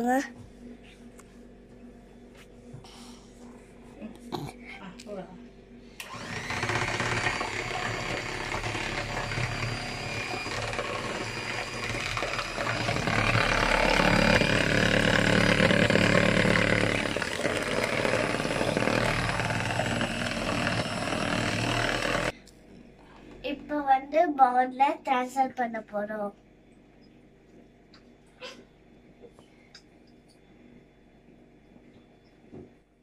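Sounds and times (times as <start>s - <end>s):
electric hand mixer whisking liquid: 6.0s - 22.4s.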